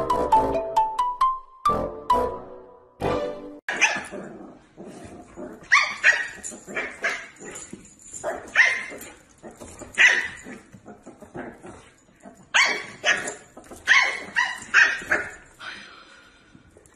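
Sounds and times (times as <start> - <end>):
dog barking: 3.7 - 4.2, 5.7 - 7.4, 8.3 - 9.1, 10.0 - 10.4, 12.5 - 15.4.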